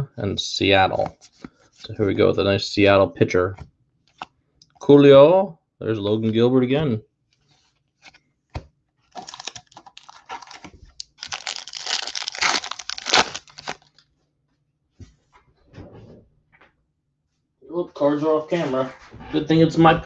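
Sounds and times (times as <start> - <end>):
cards crinkling and rustling: 7.3 - 14.1.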